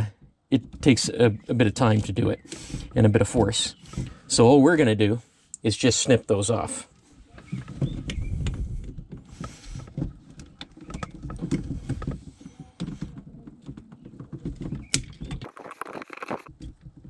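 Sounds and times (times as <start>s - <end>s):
handling rustle and small clicks: 6.9s - 17.0s.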